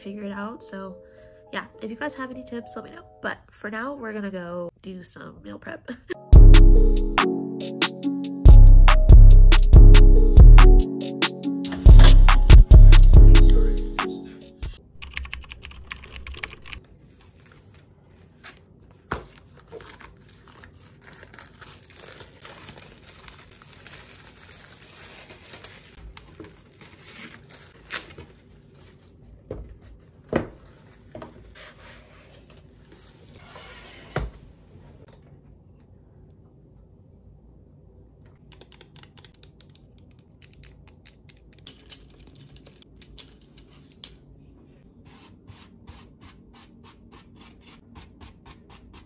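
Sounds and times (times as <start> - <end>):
background music: 0.0 - 3.4, 6.2 - 15.0
packaging crinkling and tearing: 19.5 - 29.2.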